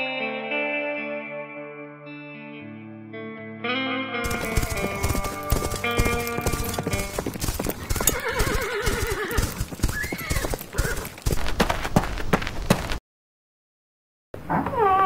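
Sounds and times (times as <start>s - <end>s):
horse hooves clip-clopping: 4.2s - 13.0s
horse whinnying: 4.3s - 11.2s.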